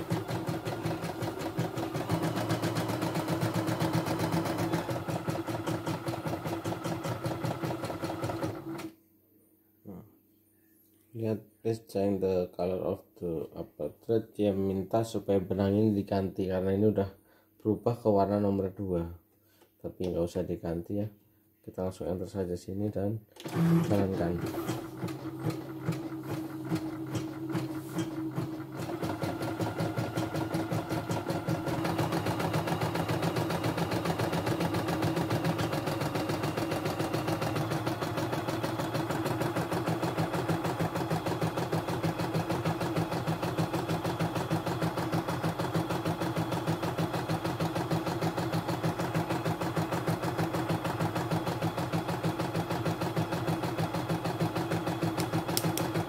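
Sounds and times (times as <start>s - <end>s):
embroidery machine stitching: 0.0s - 8.9s, 23.4s - 56.0s.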